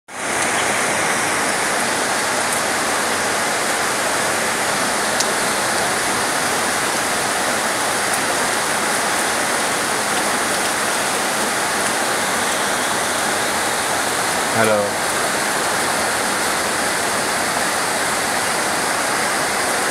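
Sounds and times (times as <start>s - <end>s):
heavy rain downpour: 0.1s - 19.9s
raindrops ticking: 0.3s - 0.8s.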